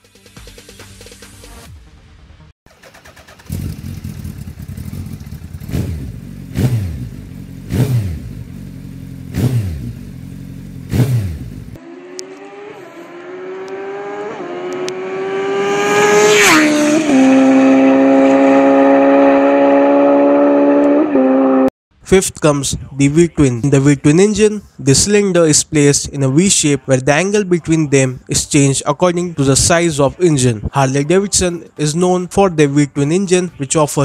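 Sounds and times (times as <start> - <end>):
motorcycle engine revving: 2.7 - 21.7
motorcycle accelerating and passing by: 2.8 - 21.7.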